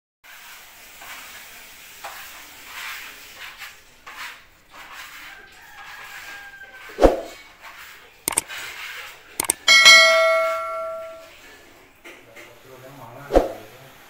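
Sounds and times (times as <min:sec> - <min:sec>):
trowel scraping paint on wall: 0:02.0 - 0:08.9.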